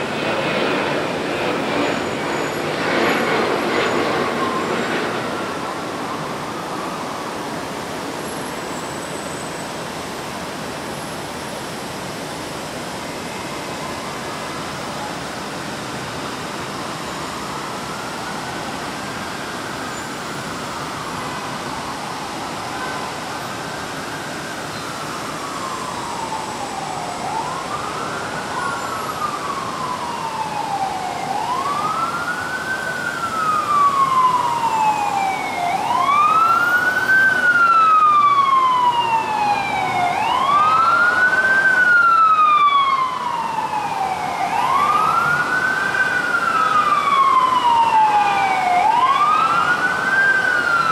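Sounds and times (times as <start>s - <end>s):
city traffic hum: 0.0s - 50.9s
emergency vehicle siren wailing: 0.0s - 50.9s.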